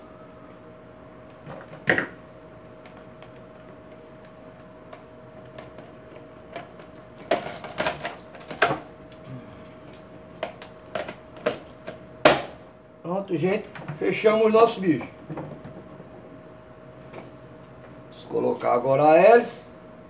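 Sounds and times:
faint steady hum: 0.0 - 20.0
plastic parts clicking and knocking: 6.5 - 8.8, 10.4 - 12.4.

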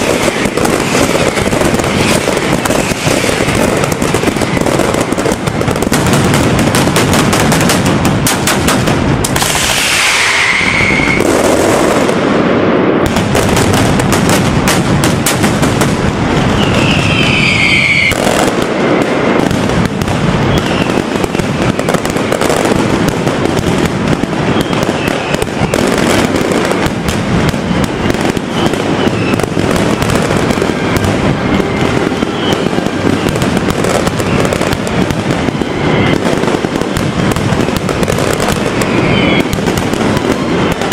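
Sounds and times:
firecracker barrage: 0.0 - 40.9
descending whistling tone: 9.8 - 11.2, 16.5 - 18.2.

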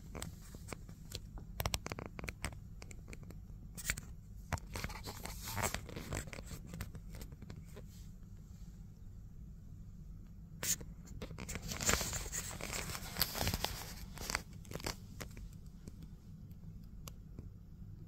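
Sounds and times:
hand rubbing on phone: 4.6 - 8.2, 10.6 - 15.4.

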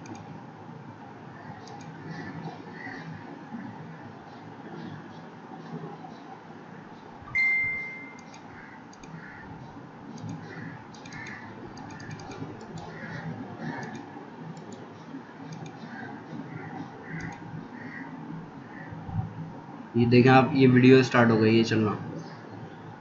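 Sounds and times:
computer mouse clicks: 0.0 - 0.3, 1.6 - 2.0, 8.1 - 9.2, 10.1 - 13.0, 13.6 - 14.9, 15.5 - 16.0, 17.1 - 17.4
chime tone: 7.4 - 8.2.

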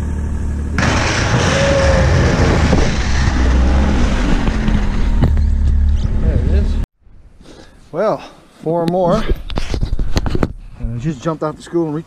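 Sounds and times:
snowmobile engine: 0.0 - 6.8.

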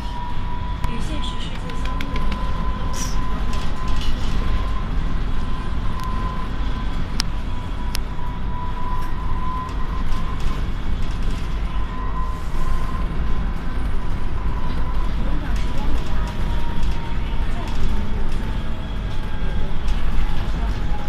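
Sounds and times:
thin steady whine: 0.0 - 15.5
bus rumbling on road: 0.0 - 21.0.

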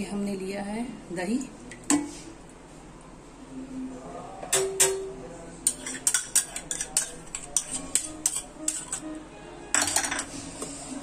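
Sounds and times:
metal spoon clinking and scraping: 5.6 - 9.0, 9.8 - 10.3.

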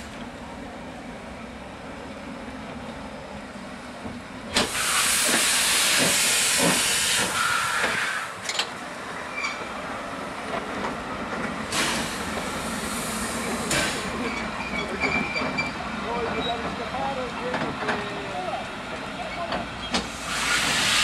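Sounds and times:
steam locomotive hissing steam: 4.5 - 8.5, 11.6 - 15.8, 19.8 - 21.0.

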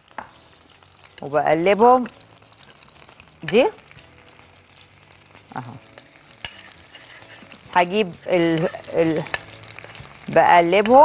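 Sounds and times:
spoon scraping a ceramic plate: 6.0 - 10.0.

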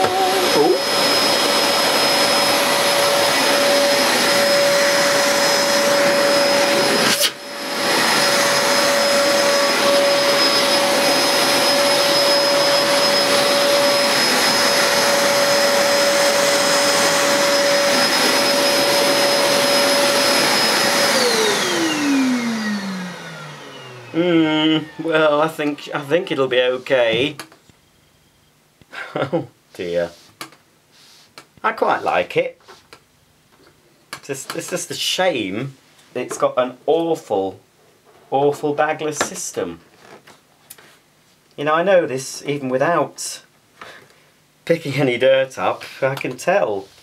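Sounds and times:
vacuum cleaner motor whine: 0.0 - 27.2.

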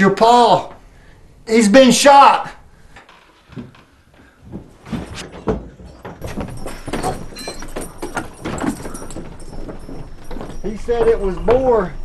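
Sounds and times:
footsteps on wooden boards: 3.0 - 12.0
horse hooves stamping: 3.5 - 12.0.

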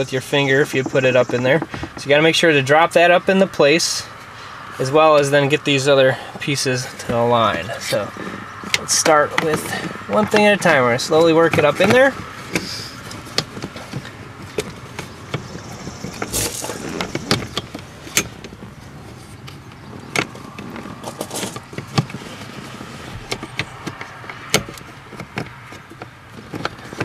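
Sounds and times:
plastic clicks taps and scrapes: 23.2 - 27.0.

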